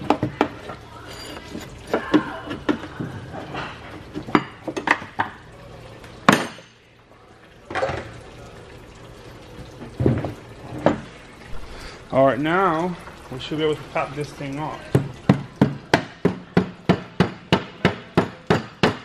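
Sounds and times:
metal tools clinking: 0:01.0 - 0:02.1.

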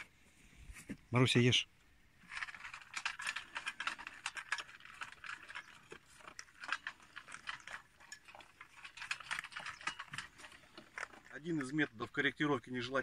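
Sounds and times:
dogs crunching kibble: 0:02.2 - 0:12.0.

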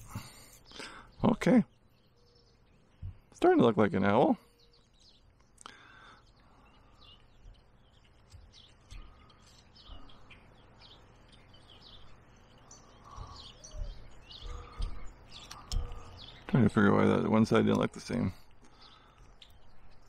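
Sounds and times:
bird chirps: 0:00.0 - 0:20.0
soft outdoor hiss: 0:00.0 - 0:20.0
soft knocks of carving: 0:13.1 - 0:16.1.

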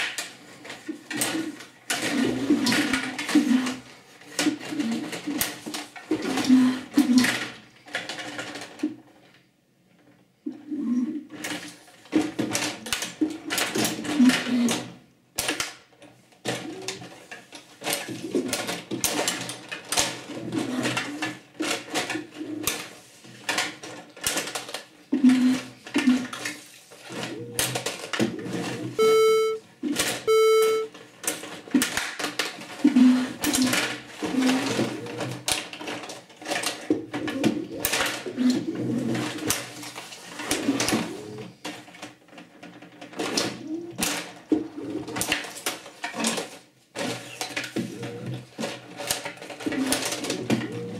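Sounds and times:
plastic puck and figures clattering: 0:00.0 - 0:09.4, 0:11.3 - 0:28.8, 0:31.2 - 0:50.7
short electronic beeps: 0:29.0 - 0:29.6, 0:30.3 - 0:30.9.

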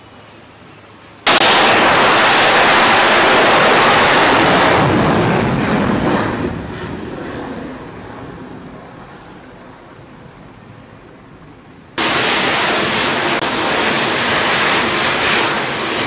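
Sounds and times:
fighter jet roar: 0:01.3 - 0:10.0, 0:12.0 - 0:16.0.

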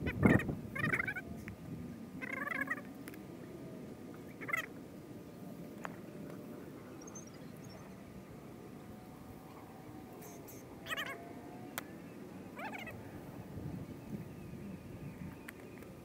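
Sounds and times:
short animal calls: 0:00.1 - 0:01.3, 0:04.4 - 0:04.7, 0:10.2 - 0:11.2.

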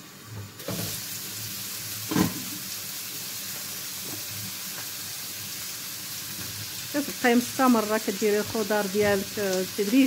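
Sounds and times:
vegetables sizzling in oil: 0:00.0 - 0:10.0.

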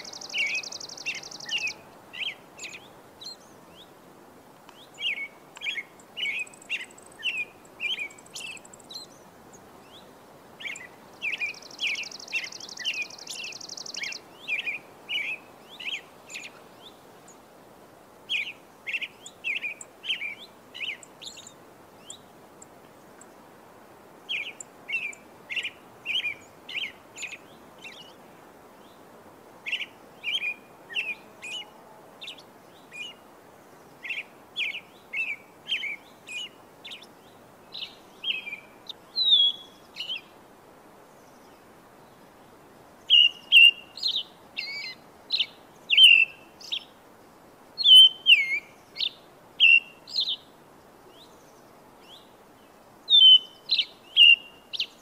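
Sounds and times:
birds chirping: 0:00.0 - 0:03.9
faint steady hiss: 0:00.0 - 0:55.0.

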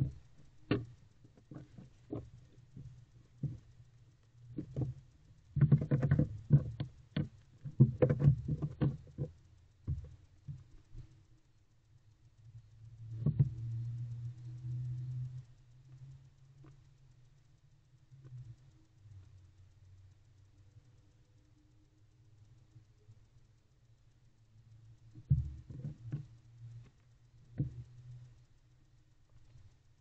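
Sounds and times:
owl scratching and scuffing: 0:00.0 - 0:03.7
low steady rumble: 0:00.0 - 0:30.0.

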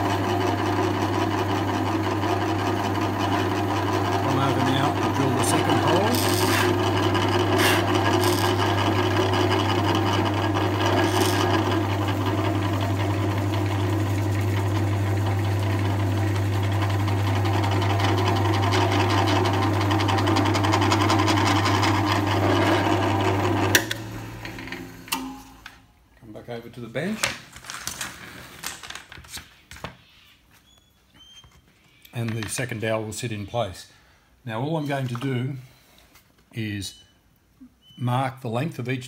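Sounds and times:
drill press boring into wood: 0:00.0 - 0:25.4
low motor hum: 0:03.0 - 0:25.6.

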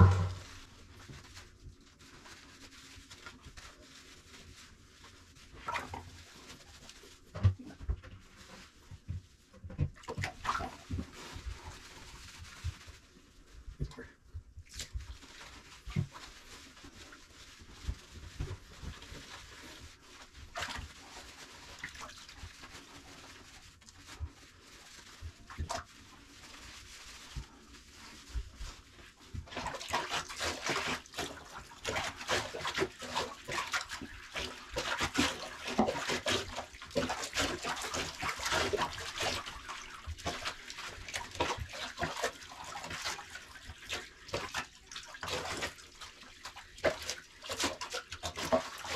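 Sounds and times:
bathwater splashing: 0:00.0 - 0:01.4, 0:02.0 - 0:13.2, 0:14.6 - 0:48.9.

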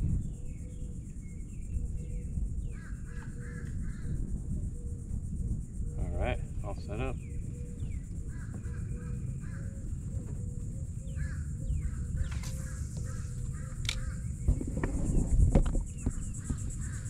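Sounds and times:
steady high buzz: 0:00.0 - 0:17.0
crow-like bird calls: 0:00.3 - 0:05.1, 0:05.8 - 0:15.3, 0:15.9 - 0:17.0
sharp clicks: 0:12.2 - 0:14.2.

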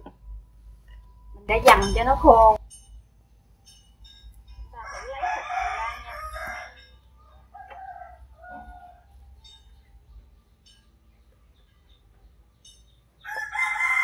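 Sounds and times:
rooster crowing: 0:04.7 - 0:09.6, 0:13.2 - 0:14.0.

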